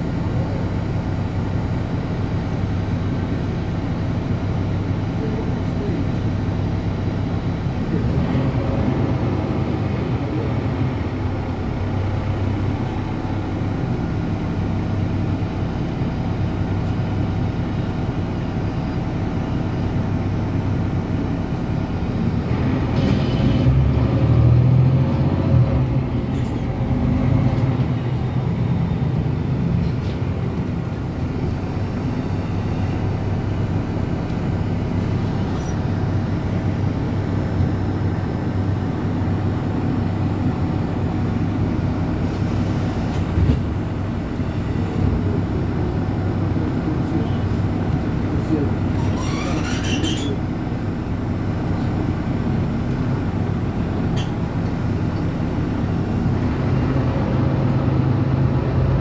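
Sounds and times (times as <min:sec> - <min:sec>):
bus drivetrain and road noise: 0:00.0 - 0:59.0.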